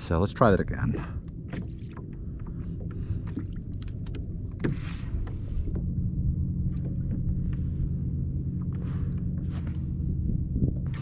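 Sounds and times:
low rumble of water: 0.0 - 11.0
steady low hum: 0.0 - 11.0.

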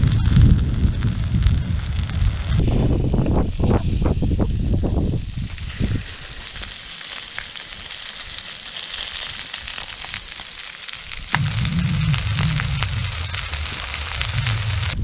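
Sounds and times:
faint crackles: 0.0 - 2.6, 5.4 - 15.0
fish and vegetables sizzling in pan: 0.0 - 2.6, 6.2 - 15.0
low rumble: 0.0 - 4.8, 11.4 - 15.0.

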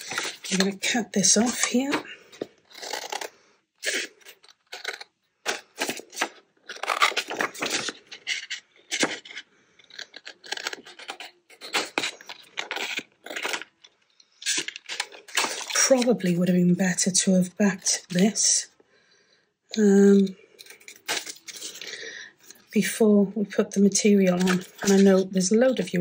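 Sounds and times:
scissors cutting card: 24.3 - 25.6.

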